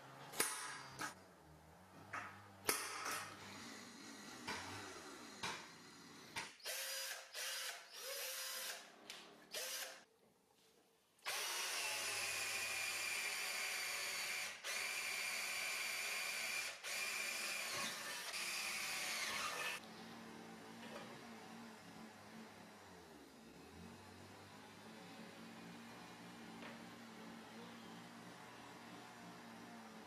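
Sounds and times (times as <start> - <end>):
power tool motor whining: 11.3 - 19.8.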